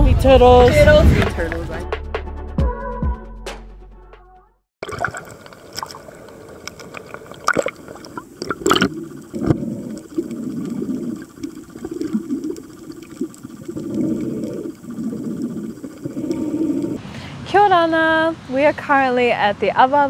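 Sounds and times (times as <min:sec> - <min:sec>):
water gurgling underwater: 0:04.8 - 0:17.0.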